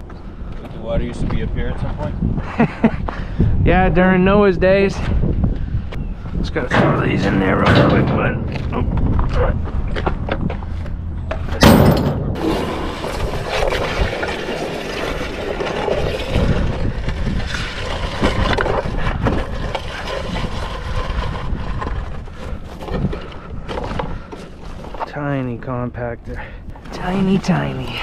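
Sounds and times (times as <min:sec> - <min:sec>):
continuous clattering rumbling: 0:00.0 - 0:27.1
heavy crash: 0:06.6 - 0:09.2.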